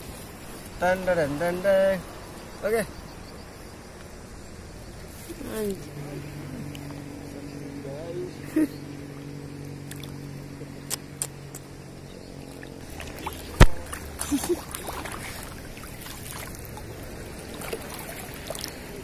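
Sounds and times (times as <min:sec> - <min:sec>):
low steady hum: 0:00.0 - 0:19.0
seawater sloshing around wading: 0:04.9 - 0:19.0.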